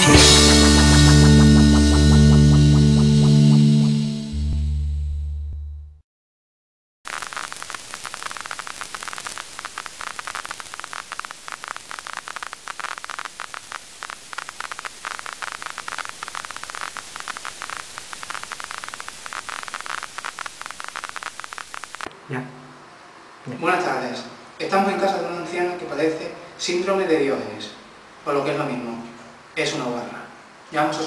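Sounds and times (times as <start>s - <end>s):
crackling static hiss: 7.1s - 31.0s.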